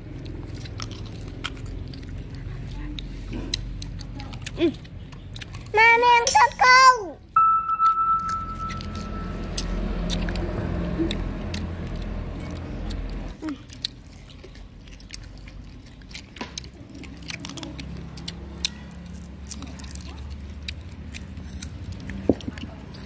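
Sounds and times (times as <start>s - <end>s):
child biting and chewing fruit: 0.0s - 7.3s, 8.2s - 23.0s
low rumble: 7.7s - 13.4s.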